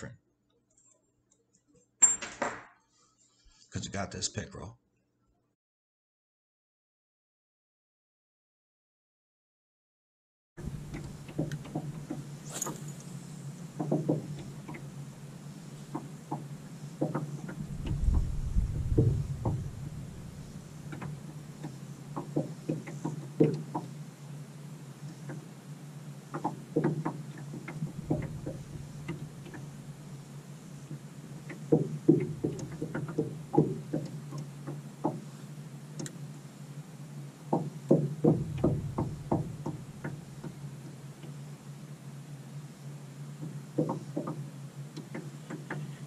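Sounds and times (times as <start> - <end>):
steady low hum: 10.6 - 46.0.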